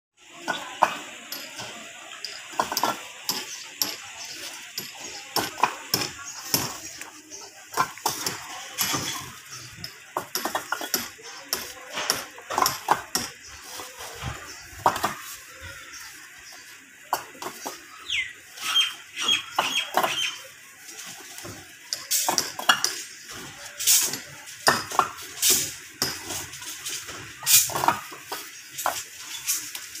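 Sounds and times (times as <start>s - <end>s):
bricks clinking together: 2.4s - 6.9s, 7.7s - 13.4s, 21.4s - 29.8s.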